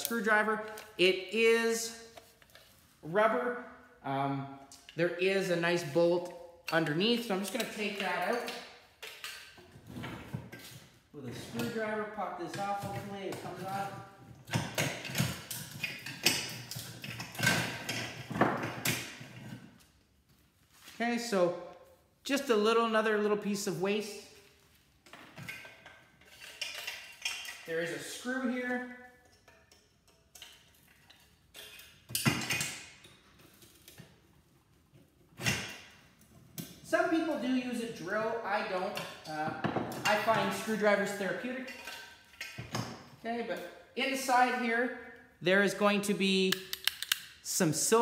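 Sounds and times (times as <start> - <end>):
metal parts clattering: 25.4 - 27.7
screwdriver metallic ticks and clicks: 46.5 - 47.3.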